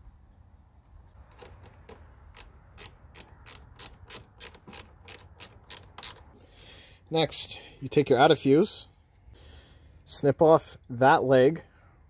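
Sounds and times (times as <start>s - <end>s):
ratchet wrench clicking: 2.3s - 6.4s.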